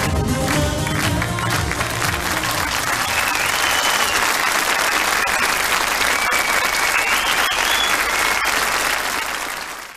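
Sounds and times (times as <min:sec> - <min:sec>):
audience applauding: 0:00.0 - 0:09.9
high whistle from crowd: 0:03.0 - 0:08.8.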